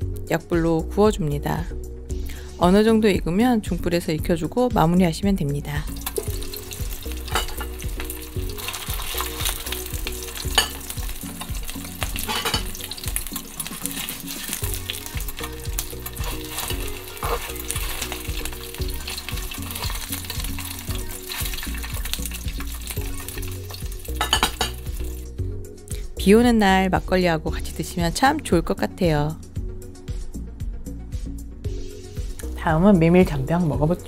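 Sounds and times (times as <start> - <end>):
food sizzling in oil: 5.9 - 25.4.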